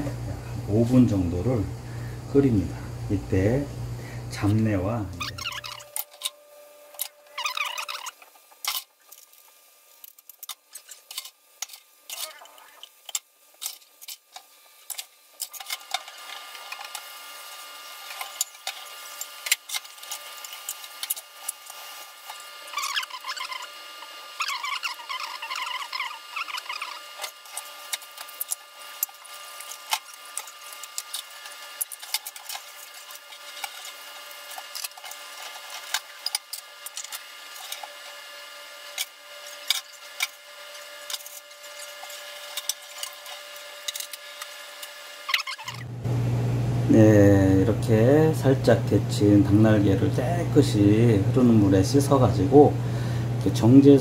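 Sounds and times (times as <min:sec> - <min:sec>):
water boiling with bubbling pops: 0:07.3 - 0:45.9.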